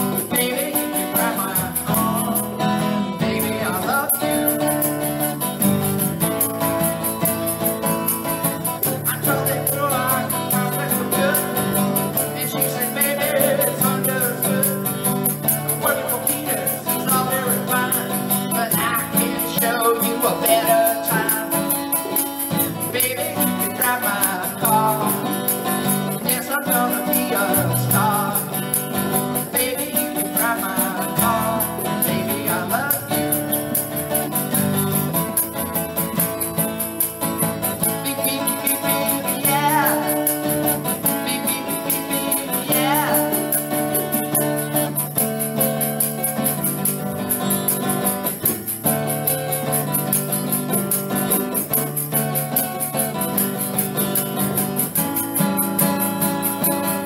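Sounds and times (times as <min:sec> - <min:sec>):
man singing: 0:00.0 - 0:06.8, 0:08.2 - 0:34.8, 0:37.3 - 0:45.0
acoustic guitar strumming: 0:00.0 - 0:57.0.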